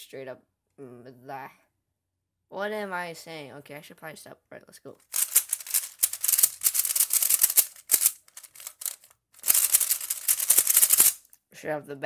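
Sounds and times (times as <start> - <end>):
plastic puzzle cube clicking: 5.1 - 11.3.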